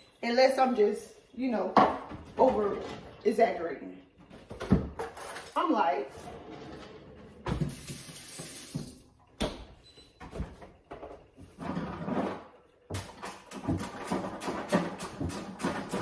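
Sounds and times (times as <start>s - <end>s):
items clattering in a freezer: 4.2s - 7.9s, 10.2s - 16.0s.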